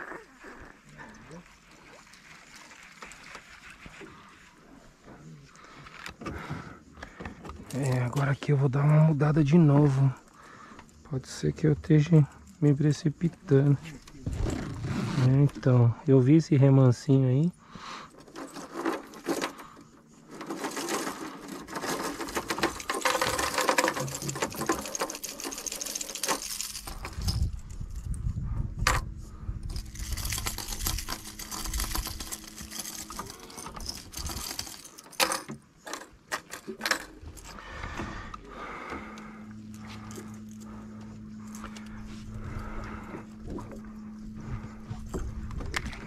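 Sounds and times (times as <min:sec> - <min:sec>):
fishing reel whirring clicks: 0:29.7 - 0:35.0.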